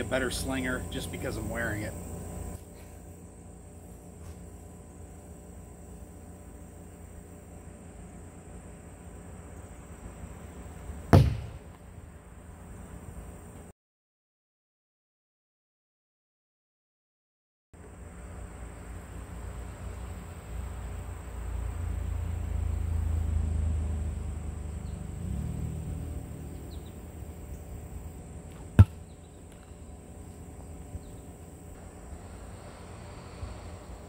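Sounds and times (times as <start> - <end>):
rock striking wooden target: 11.1 - 11.7, 28.8 - 29.0.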